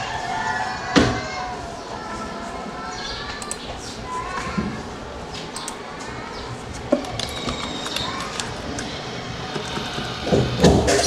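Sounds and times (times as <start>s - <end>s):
faint distant voices: 0.0s - 11.0s
keyboard and mouse clicking: 3.4s - 3.7s, 5.3s - 5.8s, 6.7s - 10.1s.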